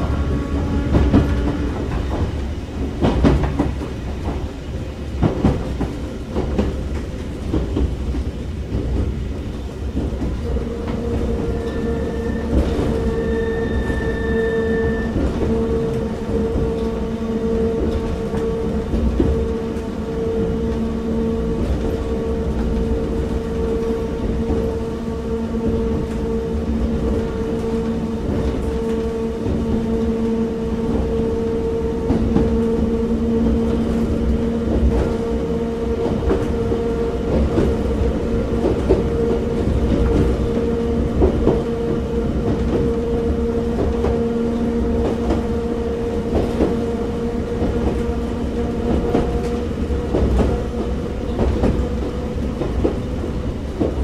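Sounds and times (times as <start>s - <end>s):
train wheels rumbling: 0.0s - 54.0s
rail-joint clicks: 0.3s - 24.8s, 46.1s - 54.0s.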